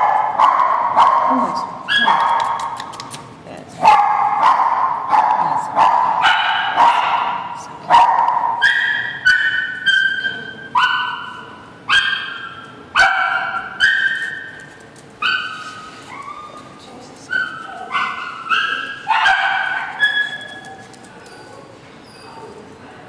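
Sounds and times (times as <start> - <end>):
dogs barking with echo: 0.0 - 2.6, 3.8 - 14.4, 17.3 - 20.9.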